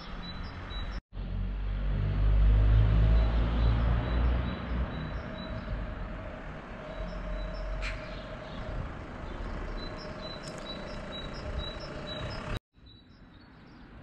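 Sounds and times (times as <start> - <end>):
low street rumble: 0.0 - 12.6
small bird chirping: 9.3 - 13.9.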